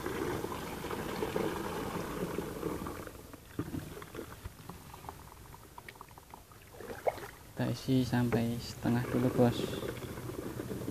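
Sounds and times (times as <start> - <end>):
liquid splashing into tank: 5.7 - 7.6.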